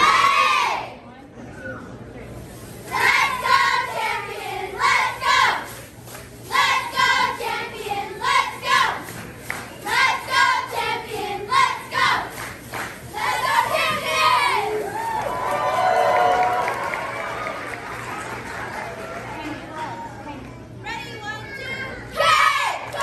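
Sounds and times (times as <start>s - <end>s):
girls chanting a cheer: 0.0s - 1.0s, 2.9s - 15.4s, 21.2s - 23.0s.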